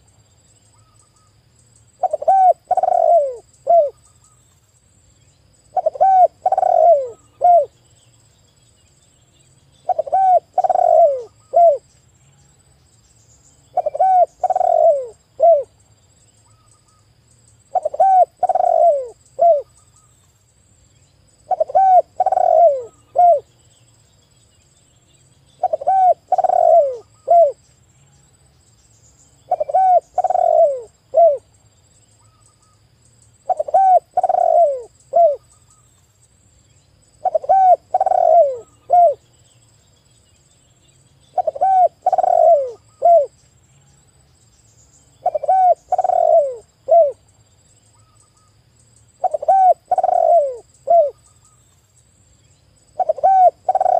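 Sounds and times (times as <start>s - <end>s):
dove cooing: 2.0s - 4.0s, 5.7s - 7.8s, 9.8s - 11.8s, 13.7s - 15.7s, 17.7s - 19.7s, 21.5s - 23.5s, 25.6s - 27.6s, 29.5s - 31.5s, 33.5s - 35.4s, 37.2s - 39.2s, 41.3s - 43.4s, 45.2s - 47.2s, 49.2s - 51.2s, 53.0s - 53.9s.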